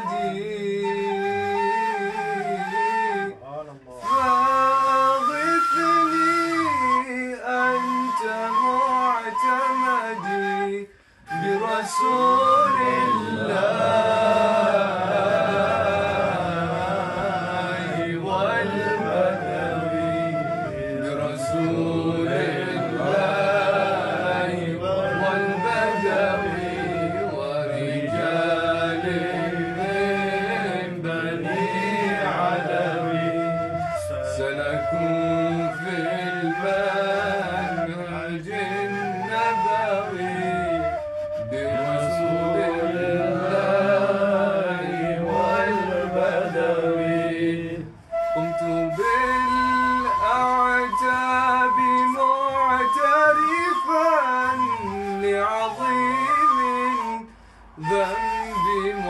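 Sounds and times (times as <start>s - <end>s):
person singing ornamented melody: 11.3s - 37.8s.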